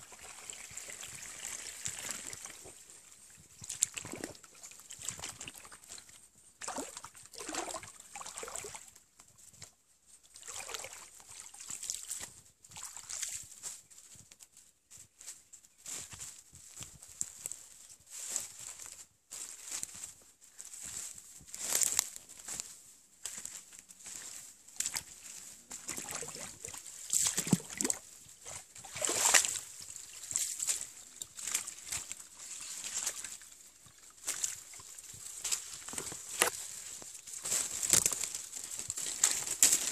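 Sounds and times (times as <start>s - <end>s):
water sloshing and splashing: 0.1s - 2.8s, 3.6s - 8.8s, 25.7s - 33.4s
footsteps in dry leaves: 15.2s - 39.9s.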